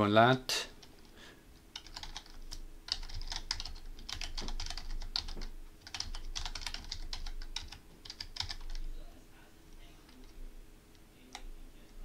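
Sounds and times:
computer keyboard typing: 0.8 - 8.9.

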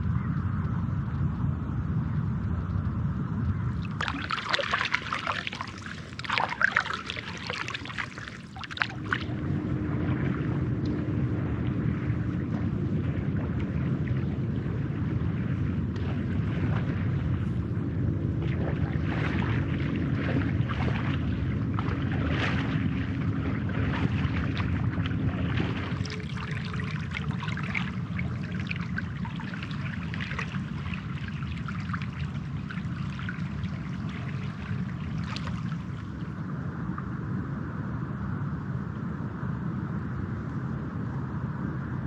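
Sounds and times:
faint hum: 0.0 - 42.0
low rumble: 0.0 - 42.0
river water splashing: 3.7 - 36.4.

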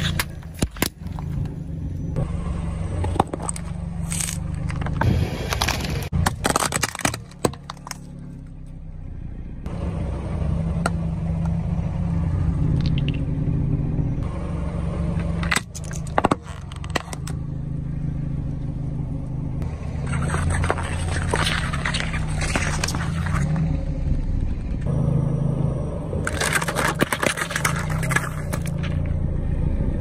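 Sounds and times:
plastic objects cracking under tyre: 0.0 - 1.4, 3.0 - 8.2, 15.2 - 17.4, 20.0 - 23.7, 26.2 - 29.1
car engine running: 0.0 - 30.0.

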